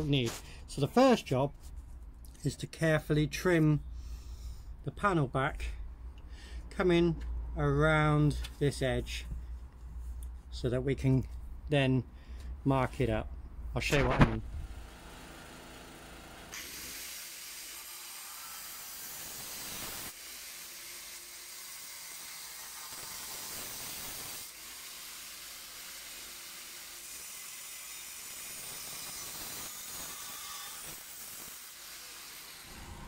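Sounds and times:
angle grinder cutting steel: 14.7 - 33.0.

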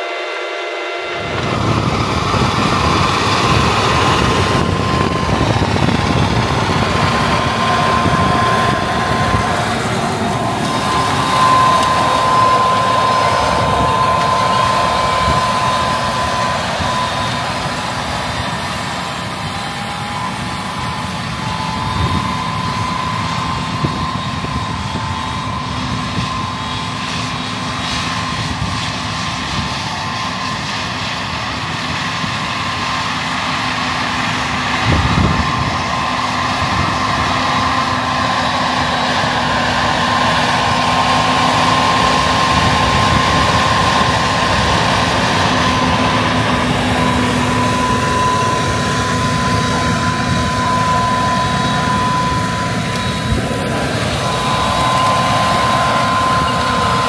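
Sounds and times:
steady high whine: 0.0 - 57.0
tractor engine running under load: 1.1 - 57.0.

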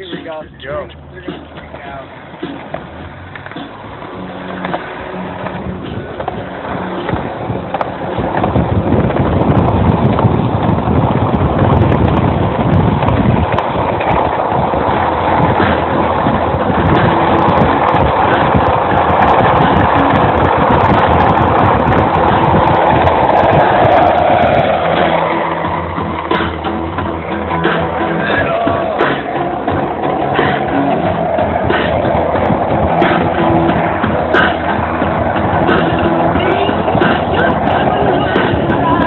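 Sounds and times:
rolling along road: 0.0 - 39.0
wind over microphone: 0.0 - 39.0.

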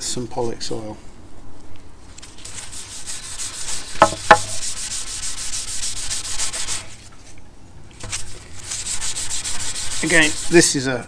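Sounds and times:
abrasive pad rubbing wood: 3.0 - 6.8, 8.8 - 10.7.

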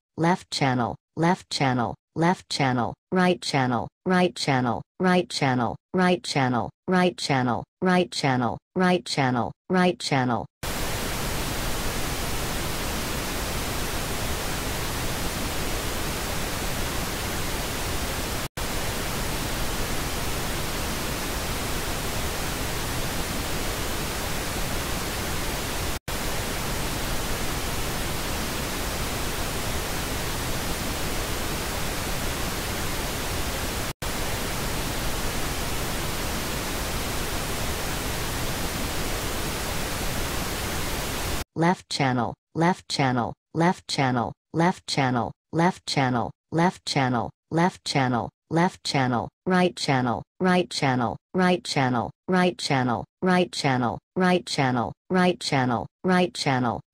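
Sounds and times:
pink noise test signal hiss: 10.7 - 41.4.

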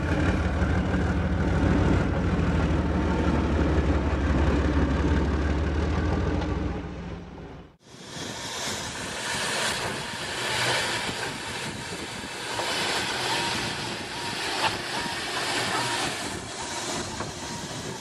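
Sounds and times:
steam locomotive hissing: 7.8 - 18.0.

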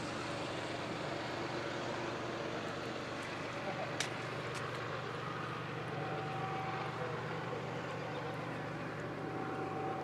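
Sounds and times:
faint thin whine: 4.6 - 10.0.

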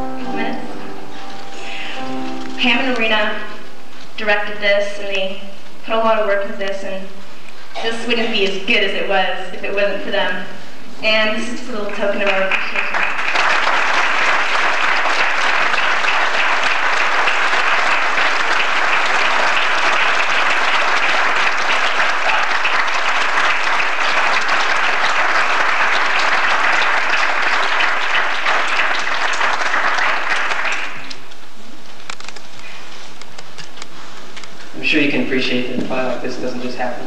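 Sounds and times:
audience applauding: 11.8 - 31.4.

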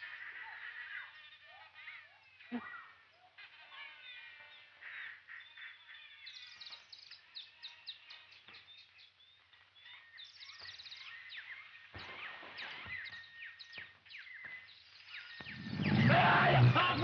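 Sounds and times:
birds chirping and whistling: 0.0 - 17.0
short noisy burst: 15.5 - 17.0.

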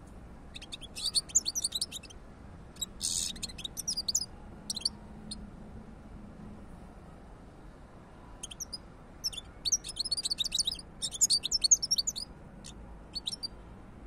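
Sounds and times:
goldfinch singing: 0.5 - 2.2, 2.8 - 4.9, 8.4 - 13.5.

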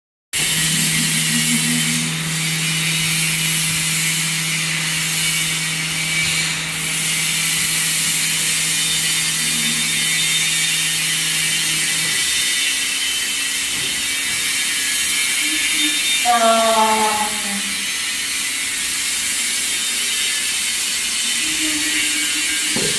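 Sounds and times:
low hum: 0.4 - 11.9
mixer motor whirring: 0.4 - 22.9.

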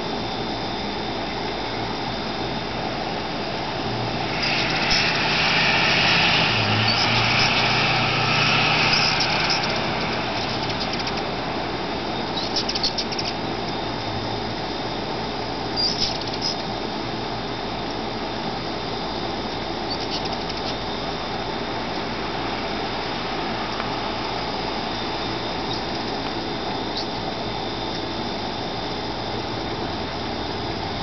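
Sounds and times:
hummingbird wings humming: 0.0 - 31.0
steady hiss: 0.0 - 31.0
short high bird chips: 4.3 - 11.3, 12.2 - 13.4, 15.8 - 16.6.

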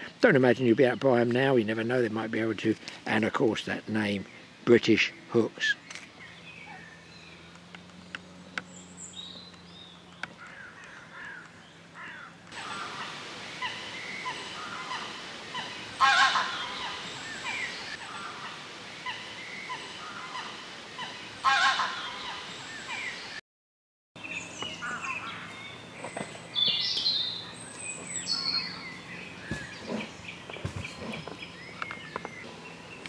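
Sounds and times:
small birds chirping: 0.0 - 23.4, 24.2 - 33.0
goose honks: 14.7 - 17.0, 21.4 - 22.2.

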